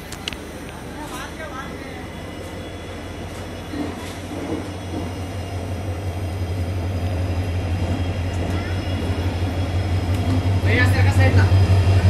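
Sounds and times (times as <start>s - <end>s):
diesel locomotive engine drone: 0.0s - 12.0s.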